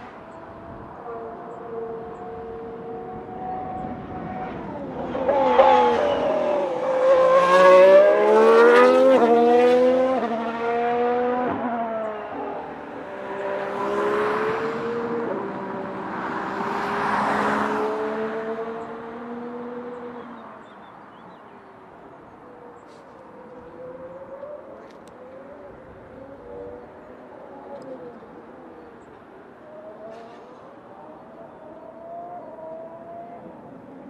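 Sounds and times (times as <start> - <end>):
distant racing car engine: 0.0 - 34.0
racing car engine accelerating: 1.8 - 20.3.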